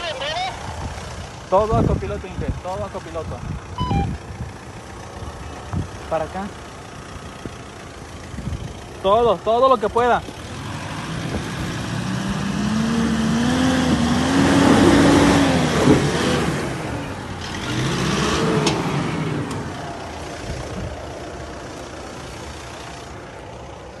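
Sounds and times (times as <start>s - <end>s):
pickup engine revving: 9.9s - 23.5s.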